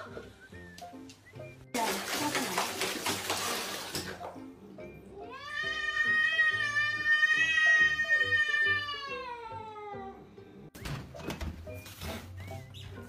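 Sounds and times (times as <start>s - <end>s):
background music: 0.0s - 13.0s
cat meowing: 5.2s - 10.2s.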